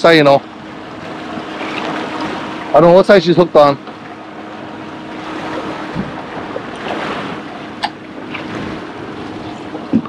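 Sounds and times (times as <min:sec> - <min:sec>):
churned water wash: 0:00.0 - 0:10.0
outboard motors humming: 0:00.0 - 0:10.0
wind on microphone: 0:05.2 - 0:10.0.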